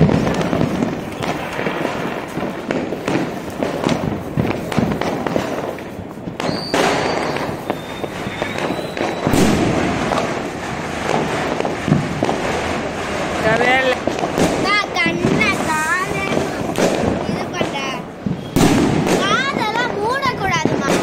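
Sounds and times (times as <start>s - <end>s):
fireworks popping and banging: 0.0s - 21.0s
thin high whistle: 6.5s - 9.3s.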